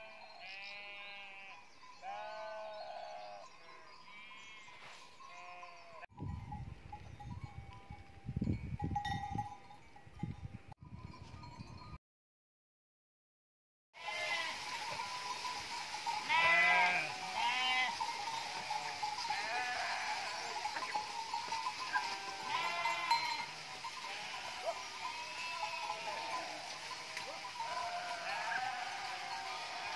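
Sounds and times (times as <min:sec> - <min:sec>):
sheep bleating: 0:00.0 - 0:03.4, 0:14.0 - 0:14.6, 0:16.2 - 0:21.0, 0:21.6 - 0:29.9
outdoor background: 0:00.0 - 0:12.0, 0:13.9 - 0:29.9.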